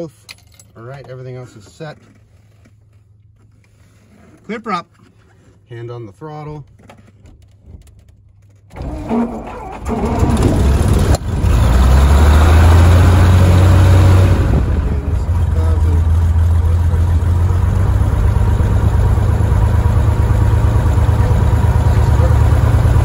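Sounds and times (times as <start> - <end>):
aircraft engine starting and idling: 7.8 - 23.0.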